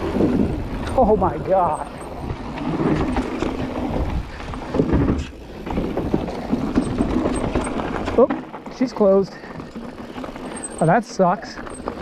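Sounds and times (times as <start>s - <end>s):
wind buffeting microphone: 0.0s - 8.2s
bike rattling over bumps: 0.0s - 12.0s
bike tyres rolling on dirt: 0.0s - 12.0s
tyres rolling on wooden boards: 0.0s - 12.0s.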